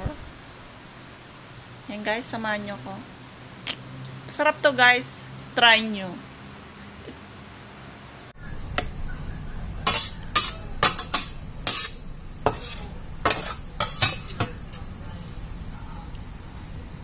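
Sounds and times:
spoon scraping baking dish: 0:09.8 - 0:14.9.

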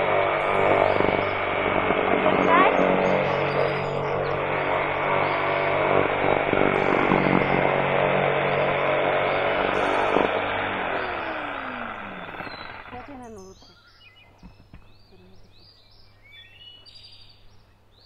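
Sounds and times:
circular saw cutting roofing sheet: 0:00.0 - 0:13.2
saw motor whine spinning down: 0:00.0 - 0:13.6.

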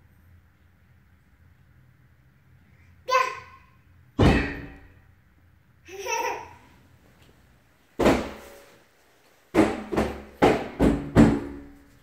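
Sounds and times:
toddler babbling: 0:03.1 - 0:03.7
sudden thump: 0:04.2 - 0:04.9.

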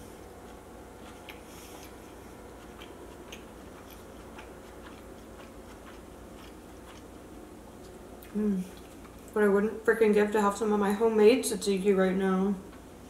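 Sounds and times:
close chewing: 0:00.4 - 0:07.2.

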